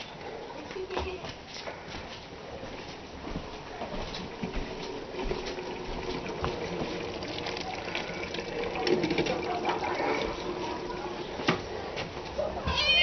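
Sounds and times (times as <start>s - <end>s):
food simmering with pops: 4.3s - 11.6s.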